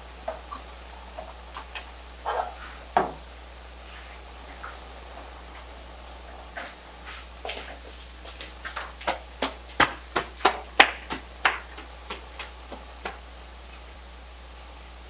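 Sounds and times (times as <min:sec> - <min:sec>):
running footsteps on stone: 0:06.6 - 0:13.4.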